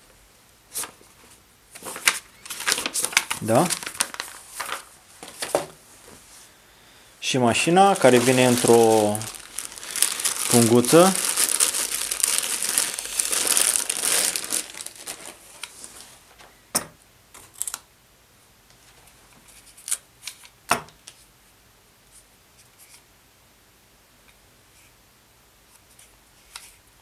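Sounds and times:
plastic bag crinkling: 1.8 - 5.4, 7.5 - 16.2.

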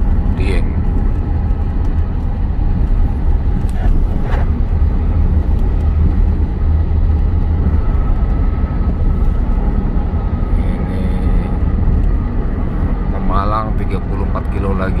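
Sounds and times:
car road and engine rumble: 0.0 - 15.0.

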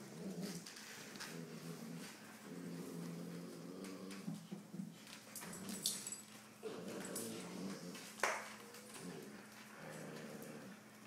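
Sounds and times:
dogs grumbling: 0.0 - 11.0.

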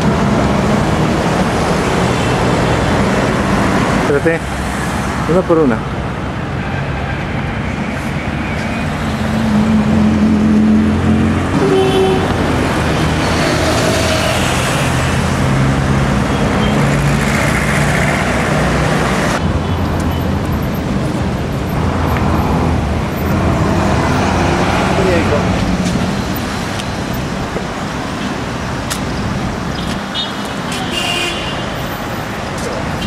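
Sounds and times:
cars and buses passing: 0.0 - 33.0.

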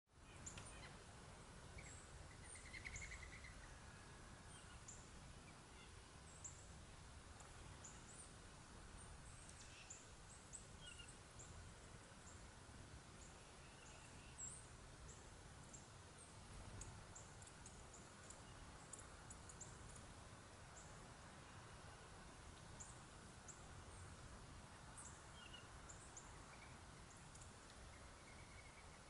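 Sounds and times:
songbird chip notes: 1.7 - 3.8
bird trill: 1.8 - 3.8.

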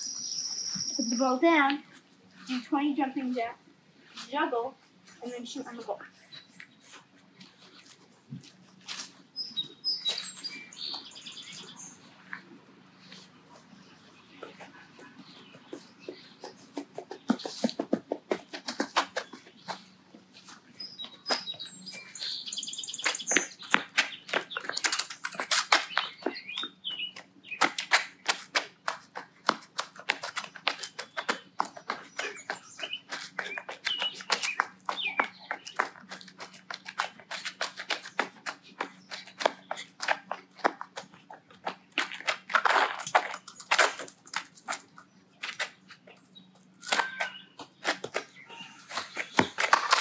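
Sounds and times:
birds chirping: 0.0 - 3.6, 4.2 - 42.3, 44.9 - 50.0
rapid footsteps and shoe scuffs: 0.2 - 50.0.

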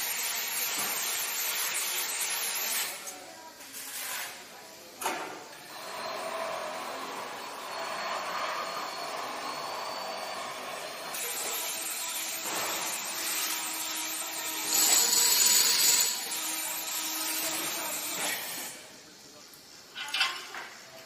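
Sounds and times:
steady mechanical noise: 4.6 - 21.0.

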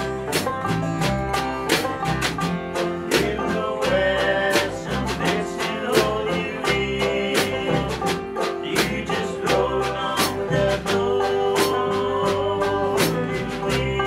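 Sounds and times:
bluegrass band playing: 0.0 - 14.0
snare drum strikes: 0.3 - 0.8.

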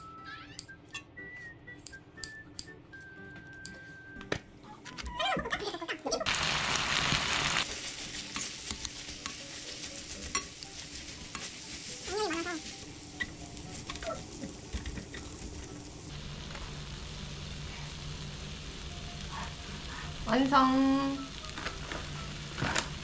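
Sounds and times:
sauce sizzling: 6.2 - 23.0
metal spoons scraping a pan: 8.2 - 12.6.

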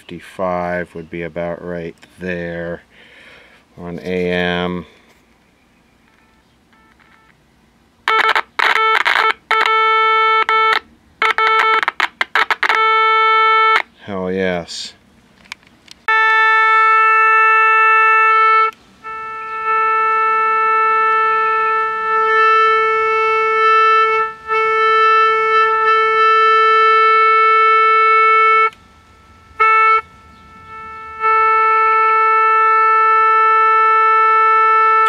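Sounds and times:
test tone from radio speaker: 8.1 - 13.9.

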